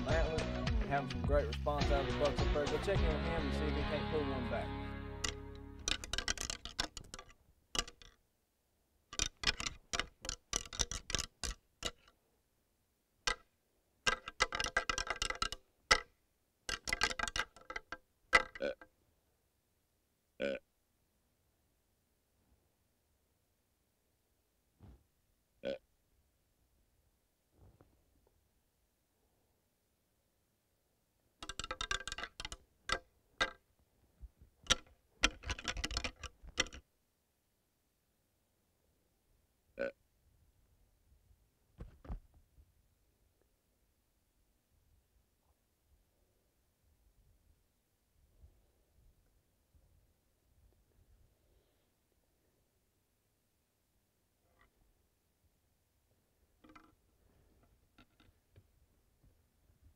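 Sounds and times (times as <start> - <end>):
antlers clacking together: 5.2 - 8.2, 9.2 - 12.1, 13.3 - 13.5, 14.1 - 16.1, 16.7 - 18.8, 31.4 - 33.6, 34.6 - 36.8.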